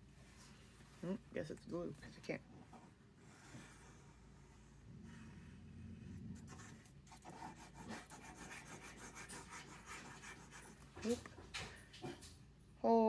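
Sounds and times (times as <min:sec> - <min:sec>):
glue stick rubbing on paper: 0:06.4 - 0:11.3.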